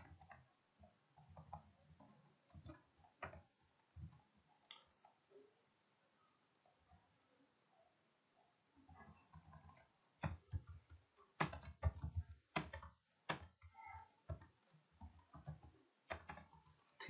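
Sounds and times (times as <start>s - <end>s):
keyboard typing clicks: 2.5s - 3.4s, 9.2s - 17.0s.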